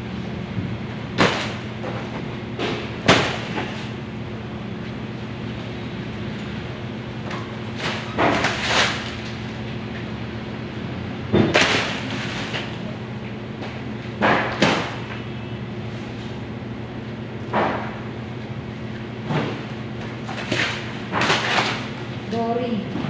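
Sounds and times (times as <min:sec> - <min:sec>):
steady machine hum: 0:00.0 - 0:23.0
boxes thudding down: 0:01.1 - 0:04.0.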